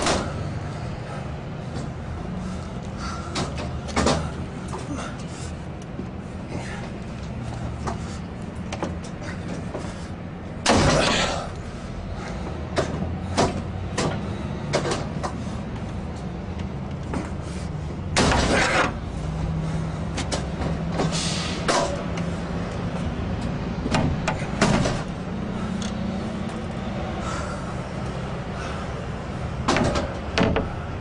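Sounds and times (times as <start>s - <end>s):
metallic knocks and clicks: 29.7s - 30.8s.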